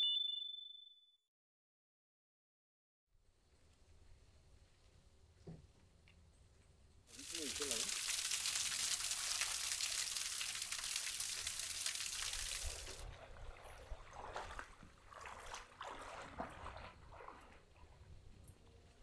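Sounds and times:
water trickling down rocks: 7.1 - 13.0
shallow stream splashing: 7.1 - 18.0.

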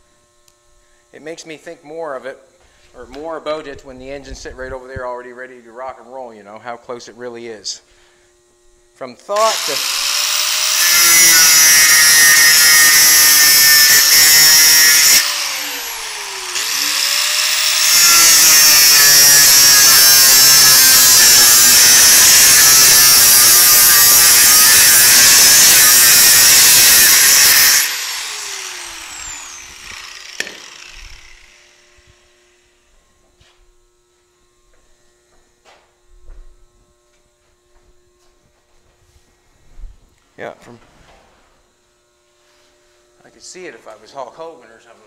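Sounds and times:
angle grinder cutting metal: 9.3 - 32.9
grinder whine winding down: 9.3 - 33.3.

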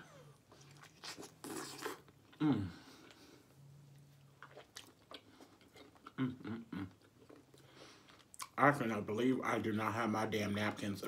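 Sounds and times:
person humming with enjoyment: 2.4 - 2.8
wet chewing with smacks: 4.2 - 6.2.

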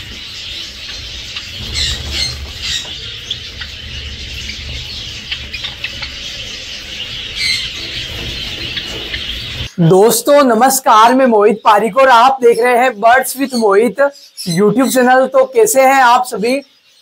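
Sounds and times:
wing flutters: 0.0 - 9.8
sparrows chirping: 0.0 - 17.0.

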